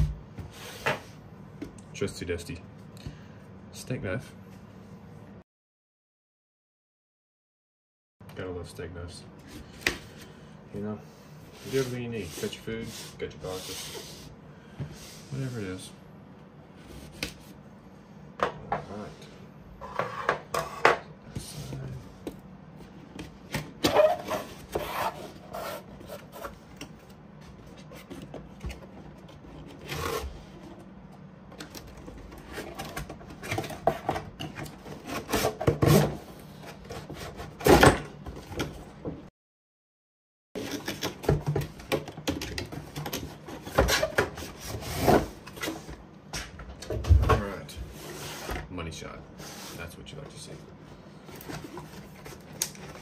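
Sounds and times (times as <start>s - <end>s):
cardboard and packing rustling: 51.2s - 53.0s.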